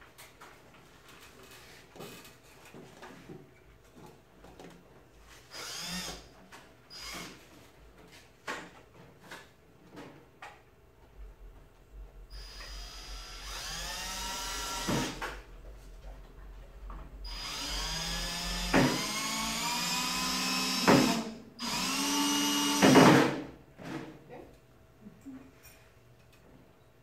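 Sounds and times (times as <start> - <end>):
cordless drill whining into wood: 5.5 - 6.3, 6.9 - 7.4, 12.3 - 15.4, 17.3 - 23.0
harsh drilling bursts: 5.5 - 6.3, 6.9 - 7.4, 12.3 - 15.3, 17.2 - 23.0.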